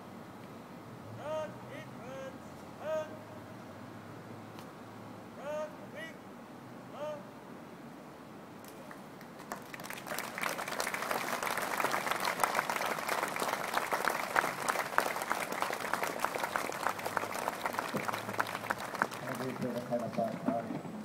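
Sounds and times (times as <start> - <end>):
crowd applauding: 8.9 - 21.0.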